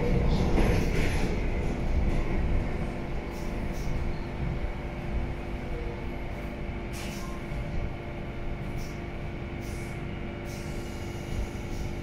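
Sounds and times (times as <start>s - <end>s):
train car hum and rumble: 0.0s - 12.0s.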